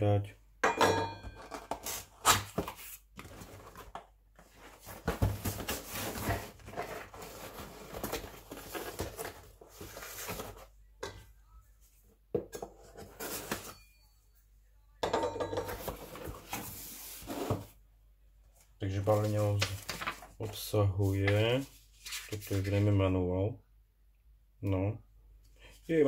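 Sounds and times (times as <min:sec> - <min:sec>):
cardboard box scraping and rustling: 0:04.6 - 0:10.6, 0:15.9 - 0:17.7.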